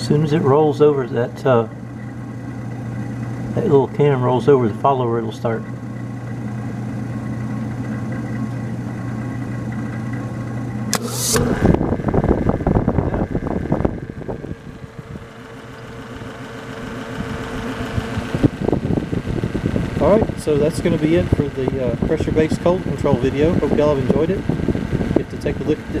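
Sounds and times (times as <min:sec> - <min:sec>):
low hum: 0:00.0 - 0:26.0
refrigerator motor rattling: 0:00.0 - 0:26.0
switch snapping click: 0:10.9 - 0:11.5.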